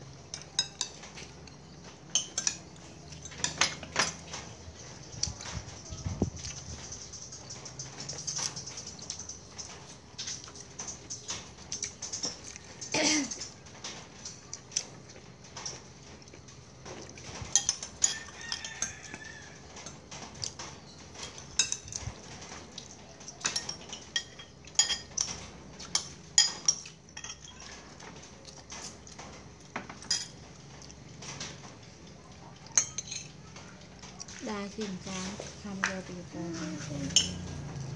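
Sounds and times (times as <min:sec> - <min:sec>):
spoons clinking on china: 0:02.1 - 0:04.4, 0:17.5 - 0:20.0, 0:23.4 - 0:27.7, 0:32.7 - 0:33.4, 0:36.7 - 0:37.8.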